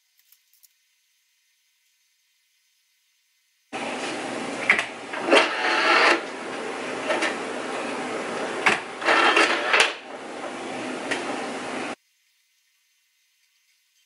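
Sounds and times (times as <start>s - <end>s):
steady hiss: 0.0s - 4.4s, 11.8s - 14.0s
disc drive whirring: 3.8s - 12.0s
disc drive clicks: 4.6s - 6.4s, 8.5s - 10.1s.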